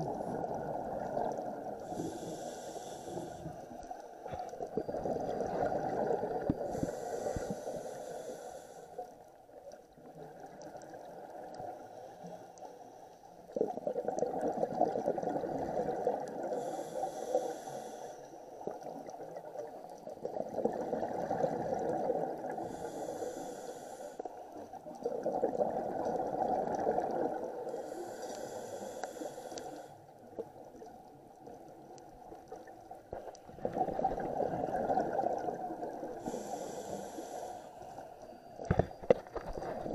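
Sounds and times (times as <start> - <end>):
faint hiss: 1.7 - 4.6, 6.6 - 9.4, 16.4 - 18.7, 22.5 - 24.7, 27.6 - 33.4, 35.8 - 39.0
diver breathing through regulator: 1.8 - 4.5, 6.6 - 9.1, 16.4 - 18.4, 22.5 - 24.4, 27.7 - 30.1, 36.2 - 38.1.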